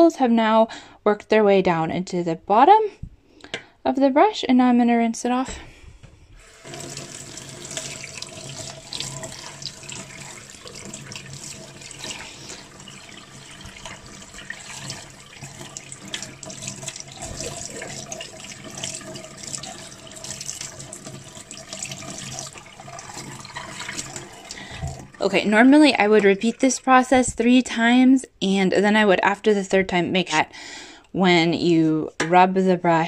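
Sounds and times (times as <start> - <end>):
tap water running into metal sink: 6.4 - 27.1.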